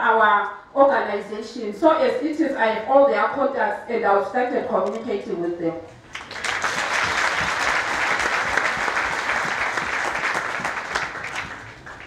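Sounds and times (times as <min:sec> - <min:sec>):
congregation clapping: 0:06.1 - 0:12.0.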